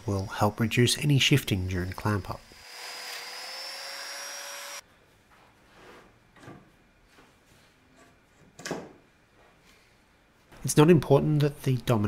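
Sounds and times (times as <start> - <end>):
power tool motor whining: 2.0 - 4.8.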